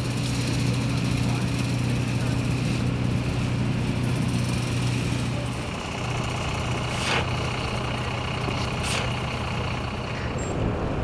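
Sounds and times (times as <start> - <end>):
vehicle engine idling: 0.0 - 11.0
snow shovel scraping pavement: 6.9 - 7.3.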